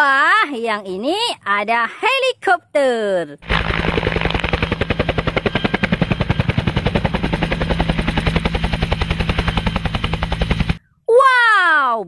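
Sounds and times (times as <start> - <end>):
helicopter rotor thudding: 3.4 - 10.8
low hum: 3.4 - 10.9.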